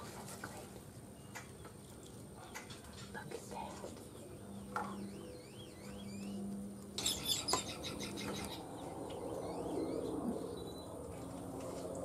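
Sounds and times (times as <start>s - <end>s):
bird calling: 4.6s - 11.0s.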